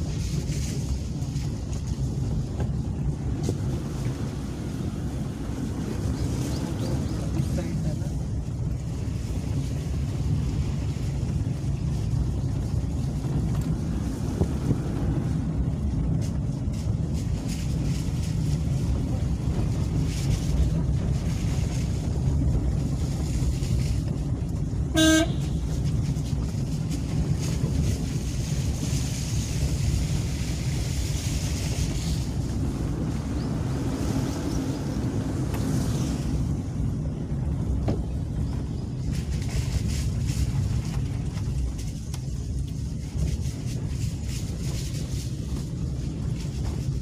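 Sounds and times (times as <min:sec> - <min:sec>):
car road and engine rumble: 0:00.0 - 0:47.0
car horn toot: 0:24.9 - 0:25.8.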